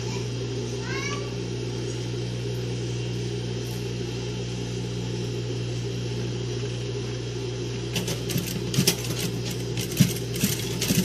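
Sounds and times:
sewing machine motor humming: 7.9s - 11.0s.

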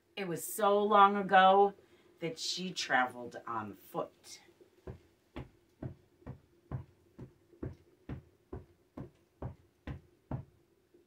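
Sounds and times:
faint steady hum: 0.0s - 11.0s
soft knocking: 4.9s - 10.6s.

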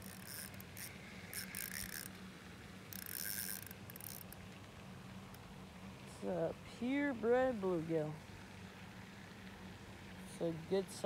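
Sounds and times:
fishing reel clicking whir: 0.0s - 2.3s, 2.9s - 4.5s.

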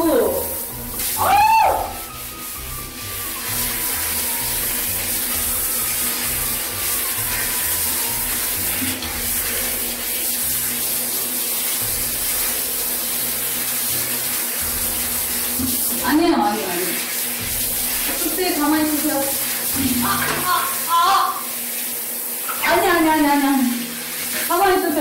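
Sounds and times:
comic background music: 0.0s - 16.8s
shower water spraying: 0.0s - 25.0s.

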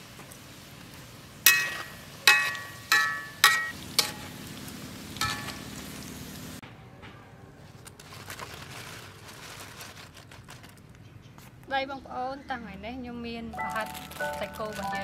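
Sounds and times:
deep-frying oil sizzling: 0.0s - 6.6s
metal tongs clinking on steel: 1.5s - 4.2s.

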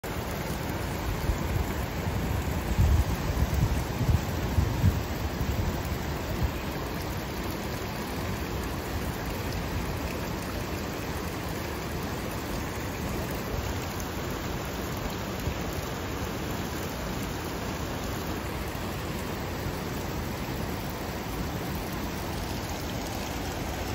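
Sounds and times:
hot spring venting steam: 0.0s - 23.9s
wind buffeting microphone: 1.2s - 6.6s.

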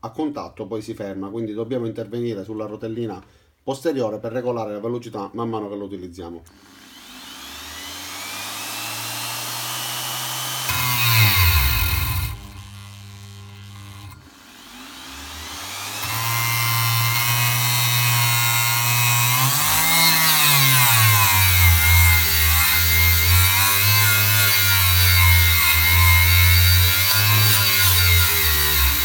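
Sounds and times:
die grinder whining: 6.5s - 29.0s.

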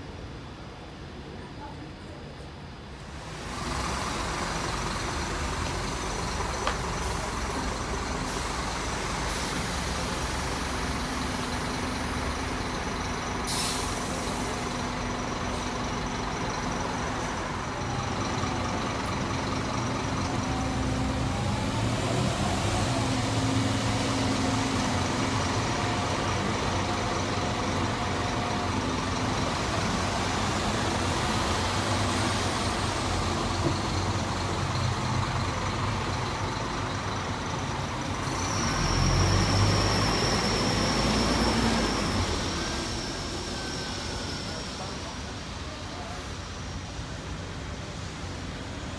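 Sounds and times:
bus engine hum: 0.0s - 48.9s
steady traffic noise: 0.0s - 48.9s
short air hiss: 13.5s - 14.5s.

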